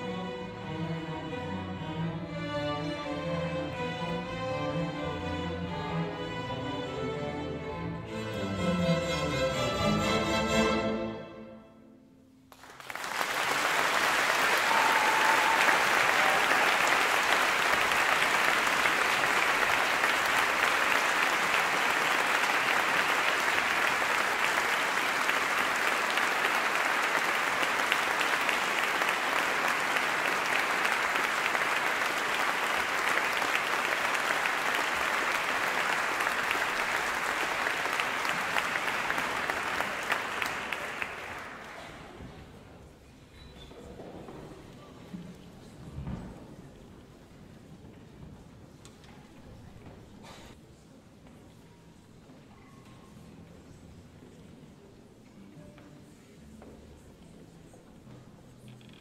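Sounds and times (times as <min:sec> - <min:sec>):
audience applauding: 0:12.5 - 0:42.2.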